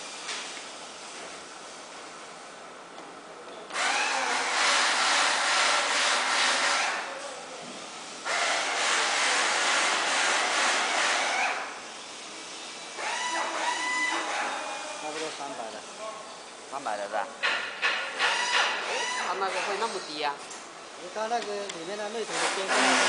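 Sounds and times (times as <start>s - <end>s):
hissing welding machine: 17.4s - 23.0s.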